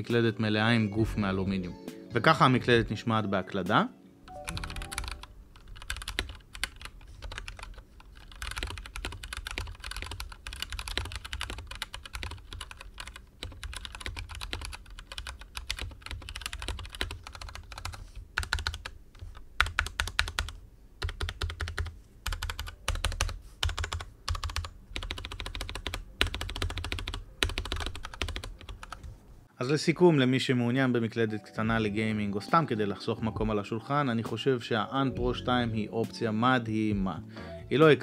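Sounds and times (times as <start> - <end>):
mechanical keyboard typing: 4.3 - 29.1.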